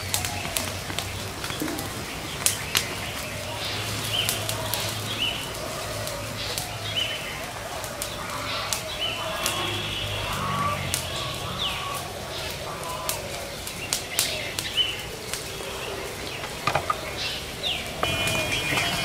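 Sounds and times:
birds whistling: 0:00.0 - 0:19.0
wood fire crackling and popping: 0:00.0 - 0:19.0.

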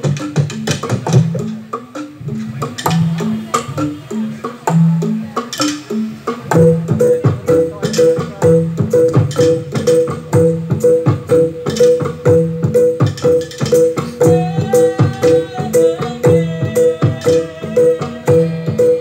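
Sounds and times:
held melody line: 0:00.0 - 0:19.0
tuned percussion and drums: 0:00.0 - 0:19.0.

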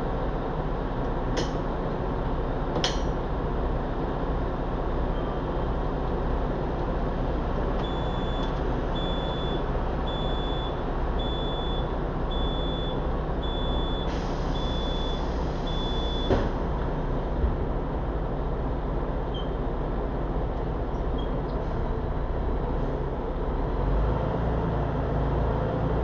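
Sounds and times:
bus engine and road rumble: 0:00.0 - 0:26.0
bus door warning beeper: 0:05.1 - 0:05.7, 0:07.8 - 0:16.5, 0:19.3 - 0:19.6
pneumatic doors closing thump: 0:13.9 - 0:16.7
hiss of air: 0:14.1 - 0:14.6.

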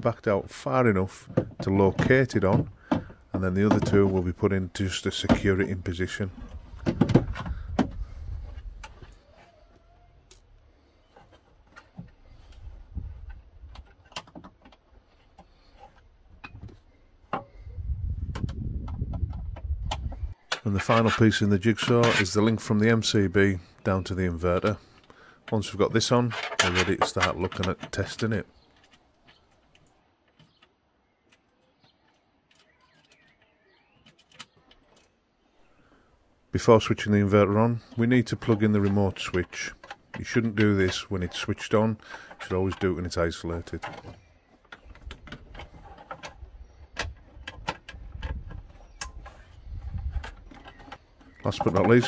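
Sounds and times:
faint bird chirps: 0:30.4 - 0:36.0
light clicks and knocks: 0:37.8 - 0:52.0.

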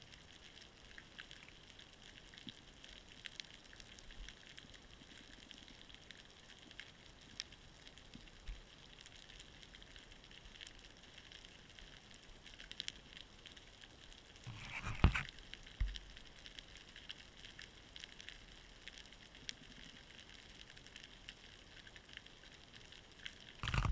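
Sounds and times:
underwater crackle and clicks: 0:00.0 - 0:23.9.

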